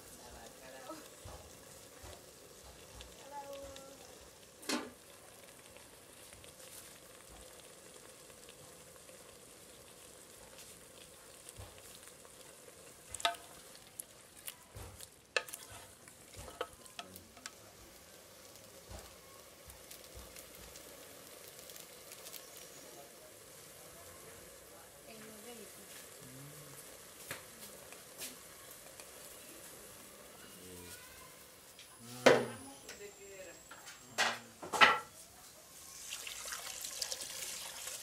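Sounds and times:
food sizzling: 0.0 - 38.0
utensil tapping pan: 13.0 - 13.8, 14.7 - 17.7.

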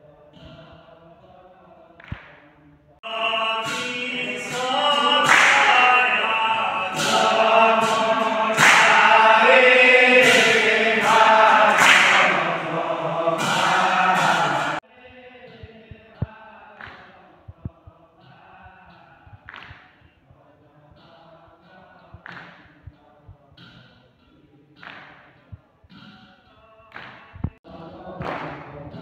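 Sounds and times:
men singing a chant: 0.0 - 2.4, 3.0 - 23.9, 26.5 - 29.0
sharp hand claps: 2.0 - 2.4, 4.5 - 14.8, 16.8 - 17.2, 19.4 - 20.0, 22.2 - 22.8, 24.8 - 26.1, 26.9 - 27.6, 28.2 - 28.8.

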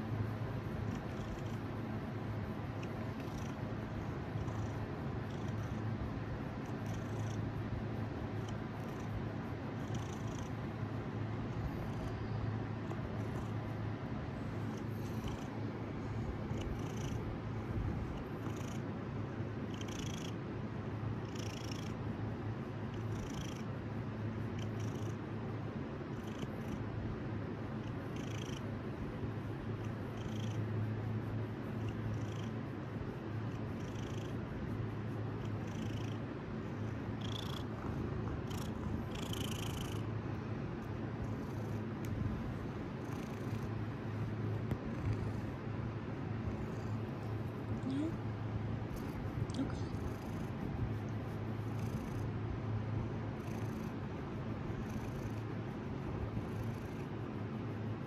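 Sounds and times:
cat purring deeply: 37.0 - 40.2.

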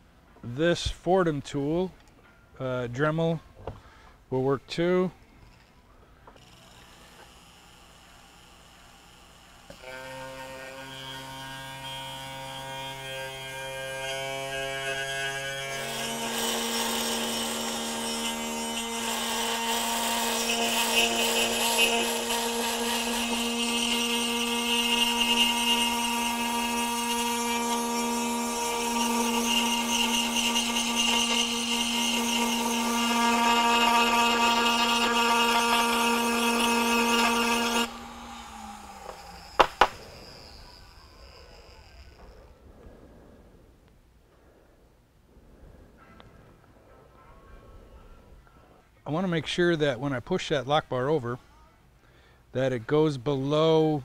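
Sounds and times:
bit grinding: 5.4 - 42.6
rotary tool motor: 6.3 - 42.6.

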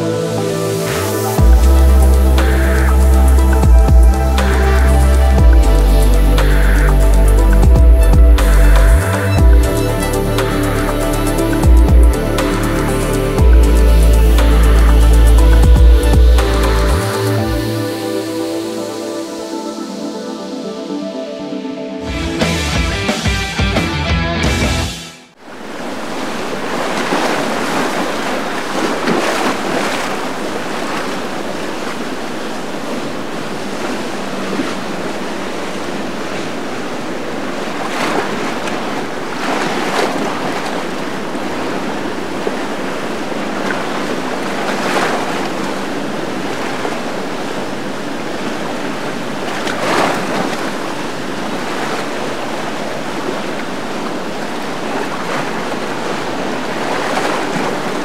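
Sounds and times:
water rushing and splashing: 0.0 - 22.7, 25.3 - 58.0.

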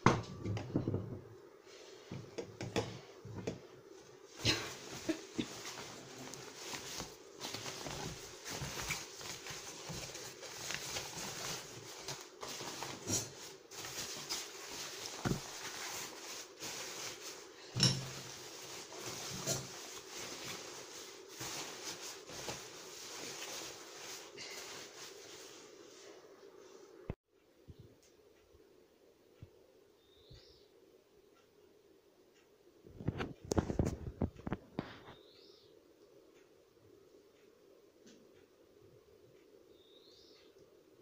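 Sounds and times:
nylon jacket rustling: 4.2 - 25.8.

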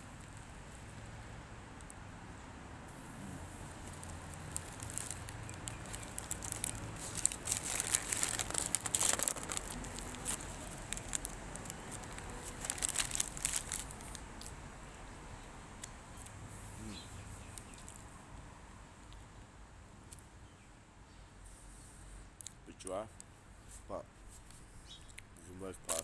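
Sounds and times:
paper bag crinkling: 3.7 - 14.2.

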